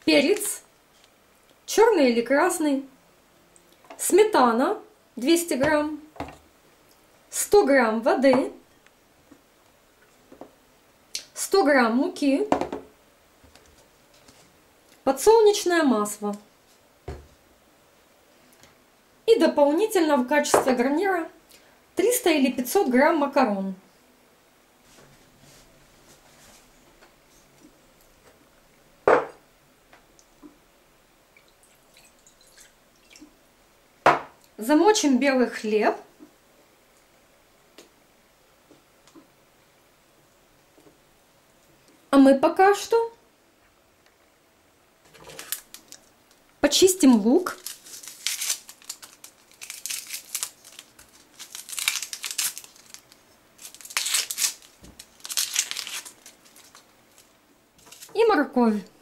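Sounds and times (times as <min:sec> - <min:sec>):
dish clunking on table: 0:29.1 - 0:29.4
water trickling into plate: 0:31.4 - 0:33.3
onion skin crackling and tearing: 0:45.2 - 0:46.4, 0:47.4 - 0:58.2.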